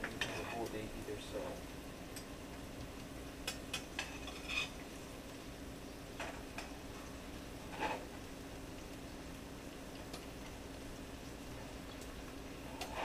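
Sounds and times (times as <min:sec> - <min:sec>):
utensil tapping a frying pan: 0:03.4 - 0:04.7.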